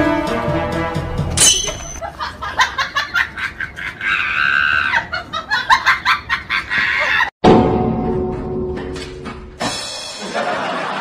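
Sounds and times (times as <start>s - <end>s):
high-pitched laughter: 2.0s - 7.3s.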